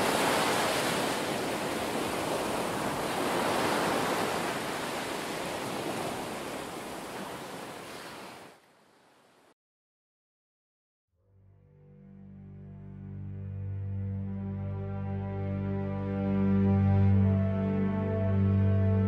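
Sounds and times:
ocean waves breaking: 0.0s - 9.5s.

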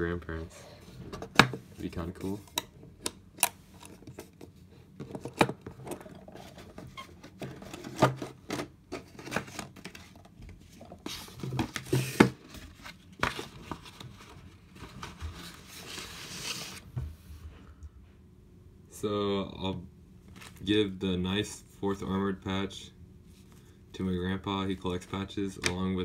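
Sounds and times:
rustling and scraping: 3.6s - 17.6s.

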